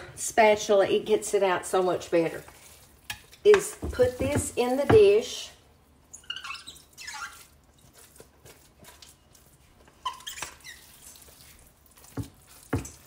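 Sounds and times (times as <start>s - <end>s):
spatula squeaks: 6.1s - 8.2s, 9.9s - 13.0s.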